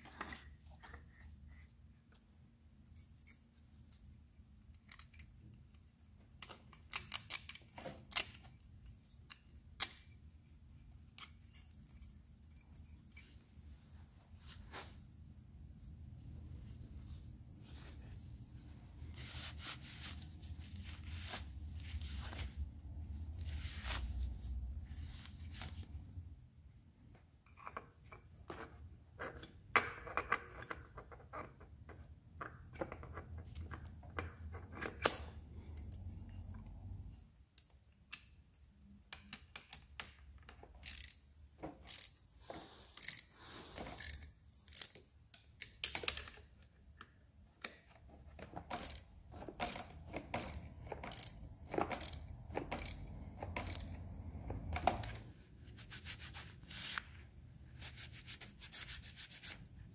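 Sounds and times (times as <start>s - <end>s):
cloth rubbing: 13.4s - 26.0s, 55.4s - 59.9s
metallic clicks and clinks: 48.7s - 54.1s.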